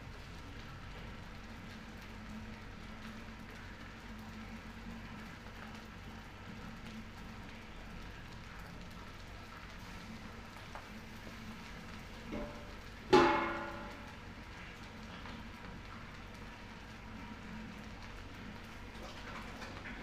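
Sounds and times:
rice sizzling in a wok: 0:00.0 - 0:20.0
metal spatula clanging on wok: 0:13.1 - 0:13.9.

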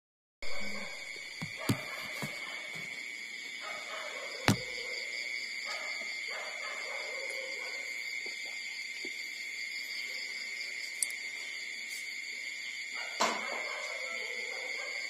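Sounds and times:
sharp knock: 0:04.5 - 0:04.7.

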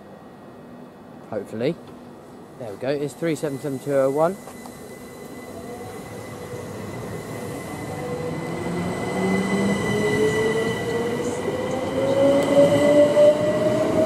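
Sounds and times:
steady high tone: 0:02.8 - 0:14.0.

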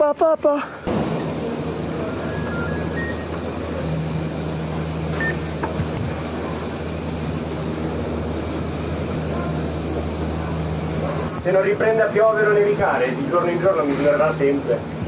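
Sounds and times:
lift machinery humming: 0:00.8 - 0:15.0
short high squeak: 0:02.3 - 0:03.4.

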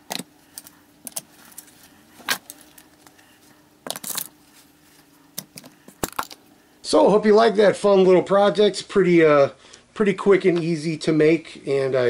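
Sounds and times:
metal items clinking into wooden box: 0:03.9 - 0:04.3.

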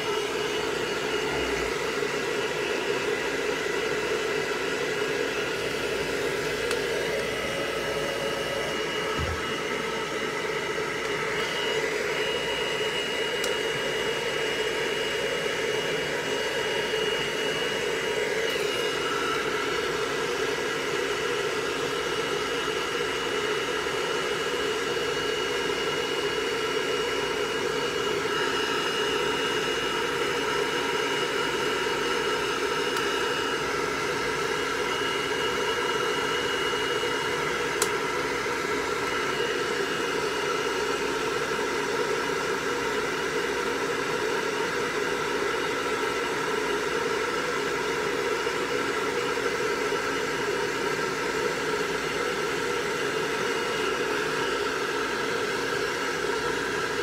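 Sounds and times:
hair dryer blowing: 0:00.0 - 0:57.0
hair dryer switch click: 0:06.6 - 0:07.4, 0:13.4 - 0:13.6, 0:37.8 - 0:38.0.

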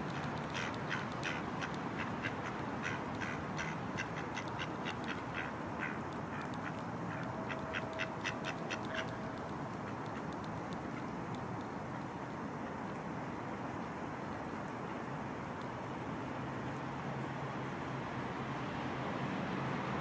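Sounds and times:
ducks quacking: 0:00.5 - 0:09.2.

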